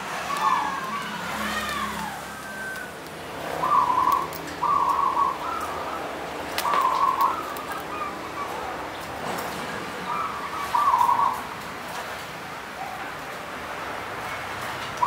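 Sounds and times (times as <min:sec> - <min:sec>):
dove cooing: 0:00.0 - 0:11.6.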